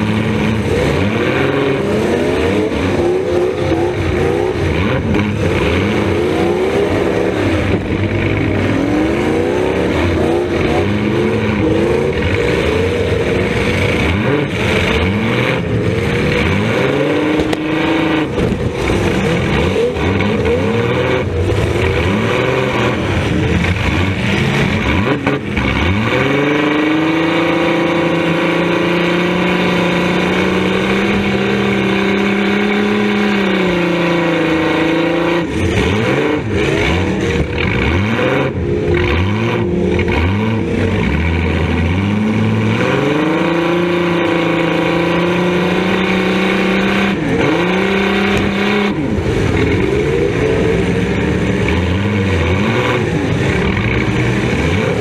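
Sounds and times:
car engine revving: 0:00.0 - 0:55.0.

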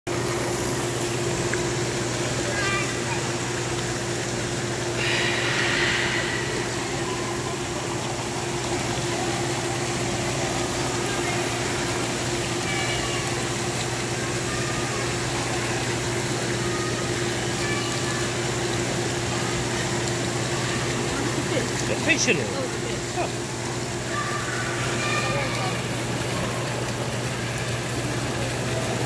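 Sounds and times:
water pumps humming: 0:00.1 - 0:29.0.

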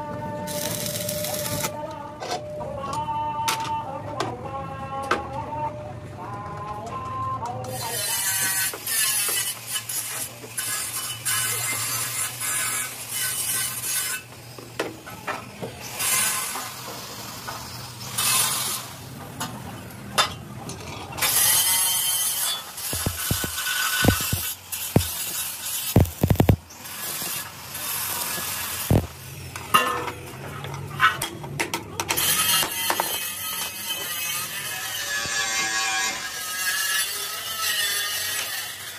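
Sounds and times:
sharp metal knocks: 0:22.9 - 0:25.2.

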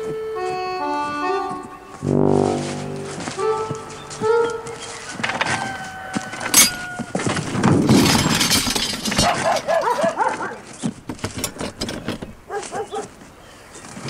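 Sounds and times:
scrap metal clattering: 0:07.8 - 0:09.8
dog barking: 0:09.3 - 0:10.6, 0:12.5 - 0:13.1.

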